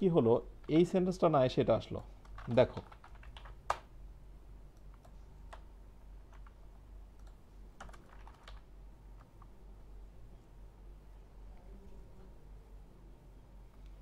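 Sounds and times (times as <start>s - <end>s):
computer keyboard typing: 2.2s - 3.9s, 4.7s - 9.5s.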